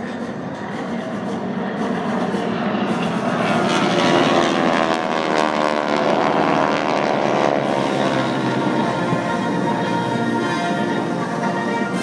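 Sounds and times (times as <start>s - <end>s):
propeller planes flying past: 0.0s - 12.0s.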